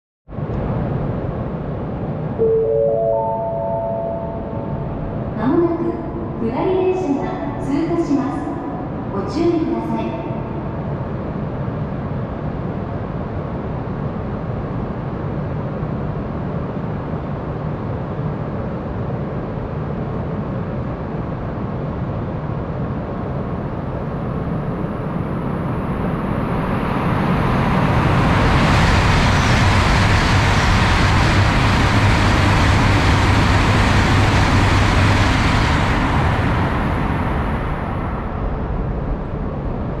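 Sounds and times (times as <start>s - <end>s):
train passing rushing noise: 21.9s - 40.0s.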